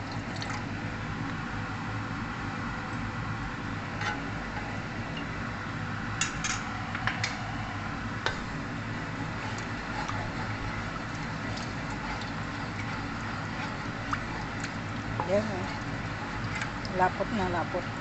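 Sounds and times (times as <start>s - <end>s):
low steady hum: 0.0s - 18.0s
sauce simmering in a pan: 8.5s - 18.0s.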